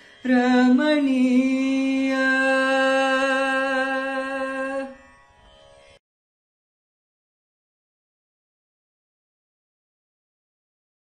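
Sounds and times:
man singing long note: 0:00.2 - 0:05.0.

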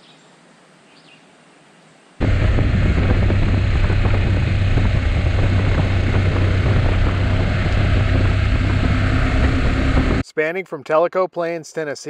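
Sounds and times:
motorcycle engine cruising: 0:02.2 - 0:10.2
wind and road noise: 0:02.2 - 0:10.2.

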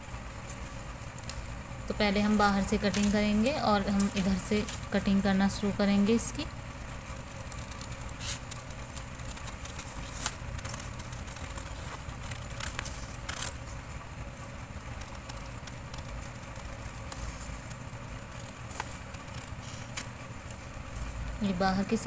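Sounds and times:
low background rumble: 0:00.0 - 0:22.0
scissors snipping paper: 0:07.5 - 0:13.7.

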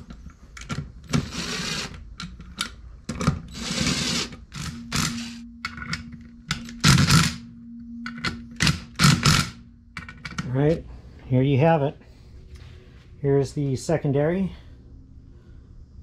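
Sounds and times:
rasping mechanical noise: 0:00.0 - 0:11.3
faint steady hum: 0:00.0 - 0:16.0.

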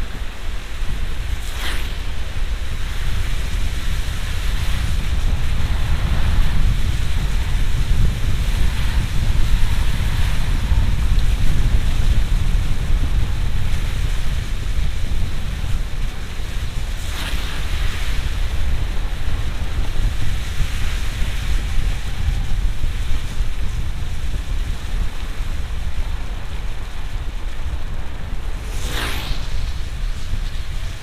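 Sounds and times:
rain and spray hiss: 0:00.0 - 0:31.0
road and tyre rumble: 0:00.0 - 0:31.0
brief swish: 0:01.4 - 0:02.1, 0:28.6 - 0:30.6.

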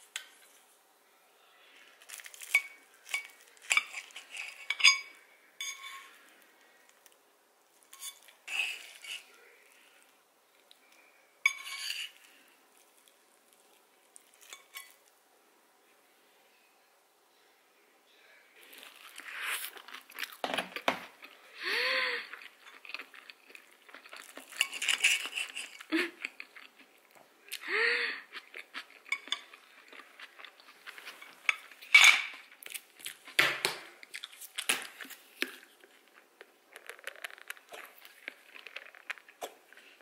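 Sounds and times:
cutlery clinking on plate: 0:02.4 - 0:06.2, 0:11.4 - 0:12.2, 0:31.1 - 0:32.4
knife squealing on plate: 0:08.0 - 0:09.3.

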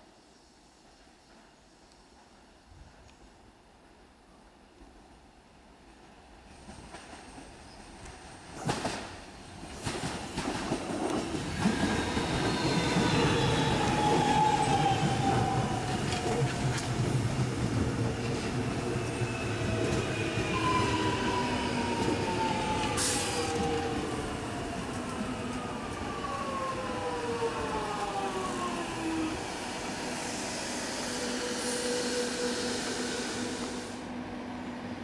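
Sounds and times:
train wheels rumbling: 0:06.5 - 0:33.9.

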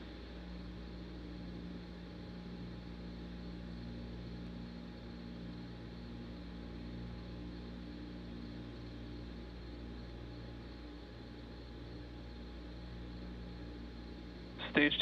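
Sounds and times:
faint vapour venting hiss: 0:00.0 - 0:15.0
low equipment hum: 0:07.8 - 0:15.0.

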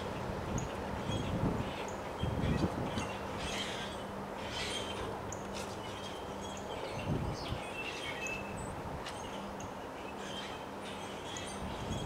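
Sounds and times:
wind gust on microphone: 0:00.0 - 0:03.6, 0:06.9 - 0:07.8, 0:11.6 - 0:12.0
strong wind through trees: 0:00.0 - 0:12.0
small birds chirping: 0:00.1 - 0:12.0.

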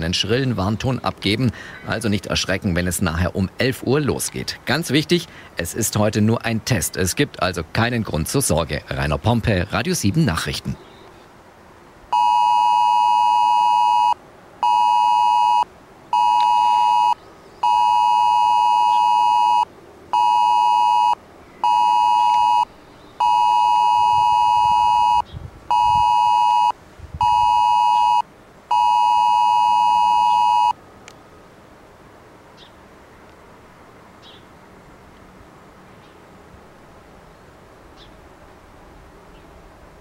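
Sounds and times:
emergency alert beeps: 0:12.1 - 0:30.8.

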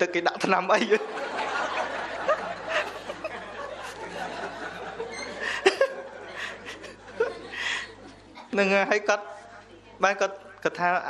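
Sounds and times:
group laughing: 0:00.7 - 0:08.6.

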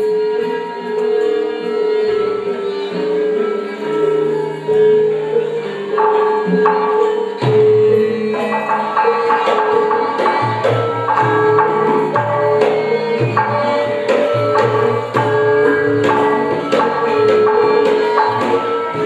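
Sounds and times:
metallophones and gongs ringing: 0:00.0 - 0:19.0
hand drum strokes: 0:04.7 - 0:19.0.

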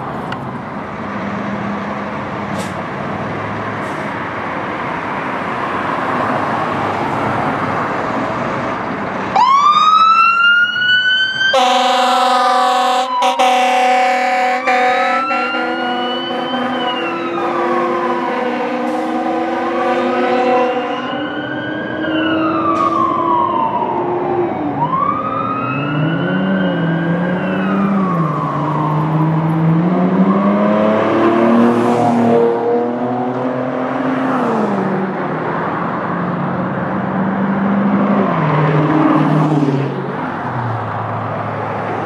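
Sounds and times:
passing traffic: 0:00.0 - 0:42.0
fire truck siren wailing: 0:03.8 - 0:34.4
lower siren tone: 0:09.3 - 0:32.4.

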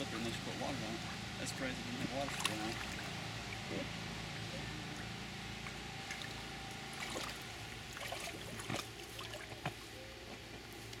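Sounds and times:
water splashing in pool: 0:02.3 - 0:03.7, 0:06.0 - 0:09.8.

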